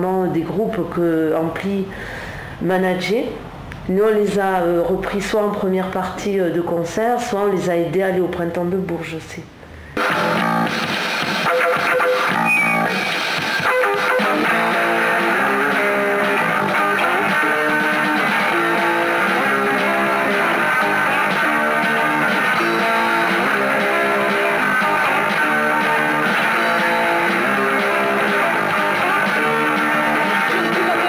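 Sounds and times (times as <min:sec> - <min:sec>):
electric guitar riff: 0:10.0 - 0:31.0
rock band playing: 0:10.0 - 0:31.0.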